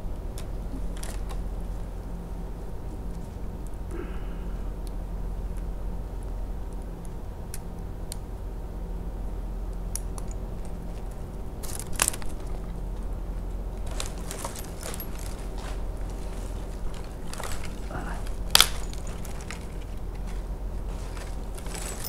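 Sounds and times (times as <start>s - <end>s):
rustling and crackling: 0.0s - 7.7s, 9.8s - 22.0s
steady low hum: 0.0s - 22.0s
rope crackling scrape: 13.8s - 22.0s
climbing hardware clicks and clinks: 13.9s - 22.0s.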